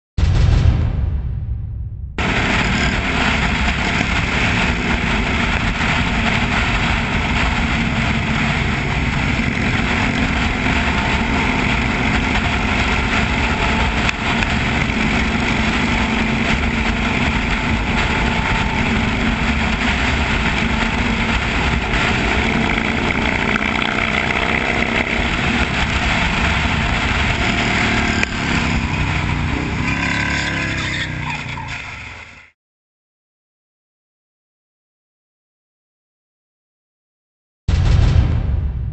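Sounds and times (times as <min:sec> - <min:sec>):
vehicle engine running: 0:02.2 - 0:32.5
traffic and road noise: 0:02.2 - 0:32.6.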